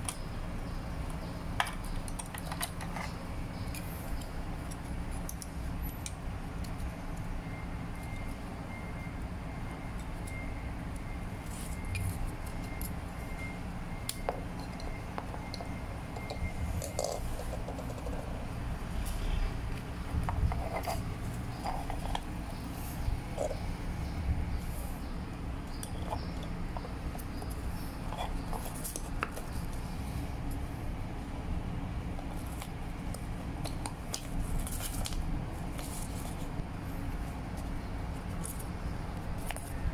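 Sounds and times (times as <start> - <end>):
low background hum: 0.0 - 39.9
plastic clicking and scraping: 25.7 - 29.8.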